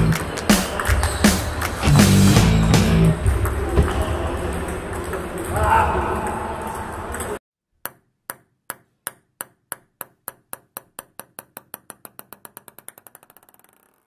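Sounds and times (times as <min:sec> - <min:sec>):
table-tennis ball bouncing: 0:03.2 - 0:14.0.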